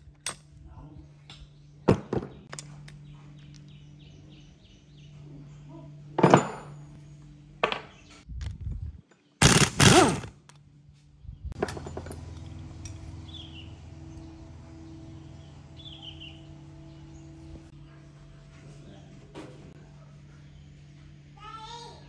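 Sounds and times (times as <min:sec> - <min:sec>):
steady low hum: 0:00.0 - 0:22.0
metal parts knocking and clunking: 0:11.6 - 0:13.1.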